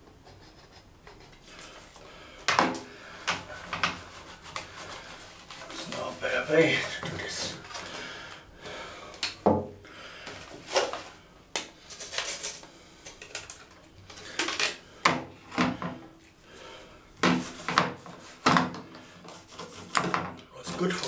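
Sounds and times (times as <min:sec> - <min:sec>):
toothbrush scrubbing plastic: 0:00.0 - 0:02.0, 0:03.2 - 0:08.0, 0:19.2 - 0:21.0.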